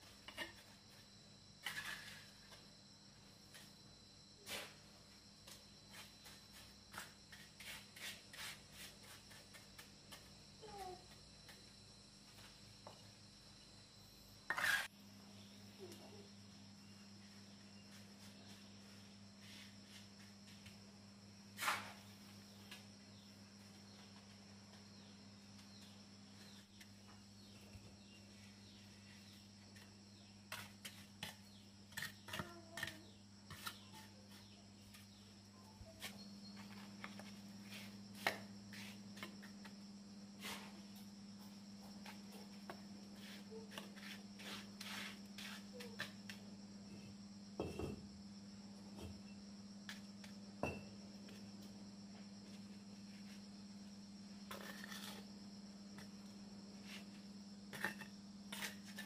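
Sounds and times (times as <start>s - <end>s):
high insect drone: 0.0s - 59.0s
trowel scraping bricks and mortar: 1.6s - 2.4s, 14.5s - 14.9s, 30.5s - 34.1s, 43.3s - 46.2s, 54.5s - 55.3s, 56.9s - 59.0s.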